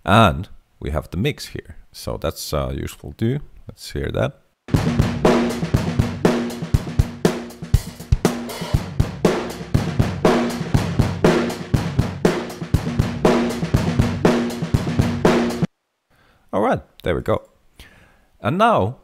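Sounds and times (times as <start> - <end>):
overdriven drum loop: 4.7 - 15.7.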